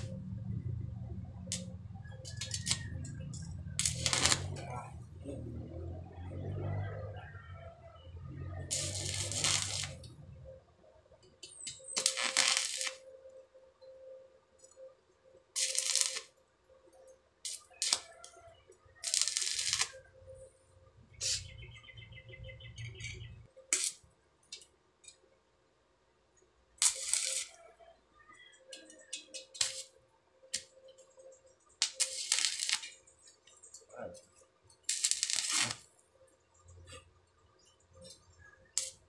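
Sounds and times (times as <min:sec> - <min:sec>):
welding arc crackling: 0:00.0 - 0:00.3, 0:01.4 - 0:05.0, 0:08.6 - 0:10.2, 0:11.5 - 0:13.0, 0:15.6 - 0:16.3, 0:17.4 - 0:18.2, 0:19.0 - 0:20.0, 0:23.7 - 0:24.6, 0:26.8 - 0:27.6, 0:29.2 - 0:30.7, 0:31.8 - 0:33.1, 0:34.8 - 0:35.9, 0:38.0 - 0:39.0.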